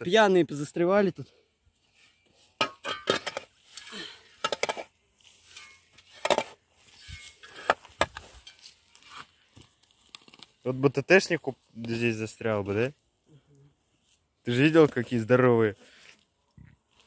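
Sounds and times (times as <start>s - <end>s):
spade digging into soil: 2.5s - 9.4s.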